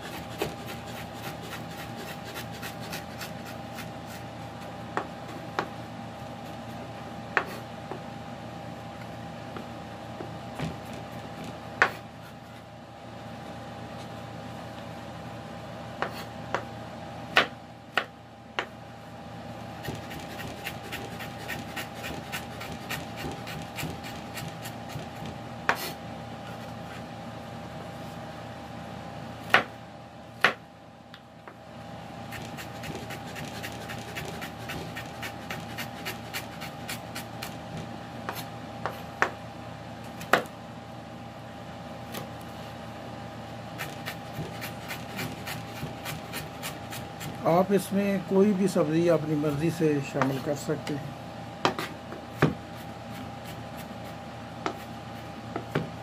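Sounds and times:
knife chopping on wooden board: 7.3 - 8.0, 9.6 - 12.0, 16.0 - 16.7, 17.3 - 18.7, 19.8 - 26.0, 29.4 - 29.7, 30.4 - 30.6, 32.3 - 39.4, 40.2 - 40.5, 43.8 - 47.4, 50.2 - 50.4, 51.6 - 54.9, 55.5 - 55.9.

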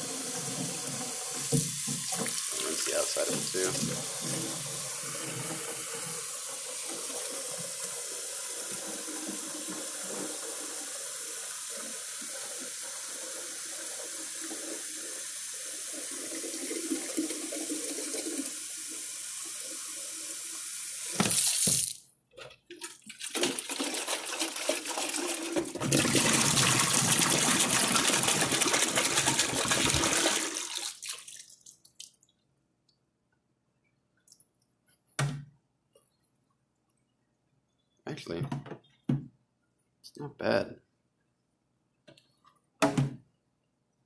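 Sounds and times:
water filling plastic jug: 0.0 - 18.9, 21.0 - 32.3
water gushing into sink: 0.0 - 20.2, 22.7 - 32.0.

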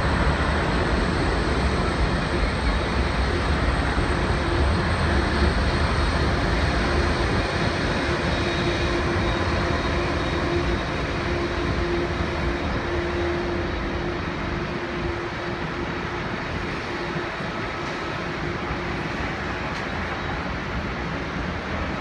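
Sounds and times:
constant hum: 0.0 - 22.0
jet engines idling: 0.0 - 22.0.

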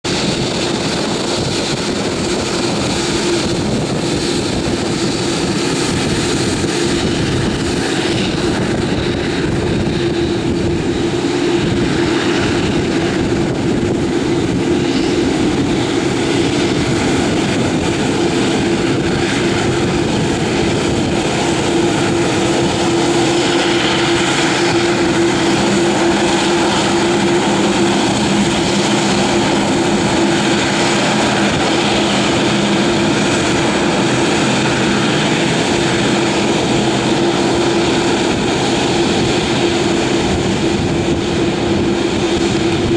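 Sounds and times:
jet engines taxiing: 0.0 - 42.9.

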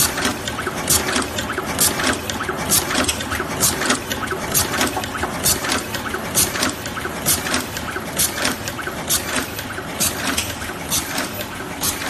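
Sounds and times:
machine hum: 0.0 - 8.2.

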